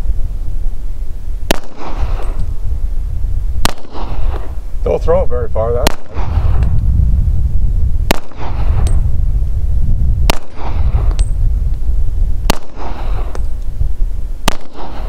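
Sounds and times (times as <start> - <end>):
wind rumble on microphone: 0.0 - 15.0
pistol shots with echo: 1.5 - 2.5, 3.6 - 4.6, 5.6 - 6.7, 8.0 - 9.0, 10.3 - 11.4, 12.4 - 13.5, 14.4 - 15.0.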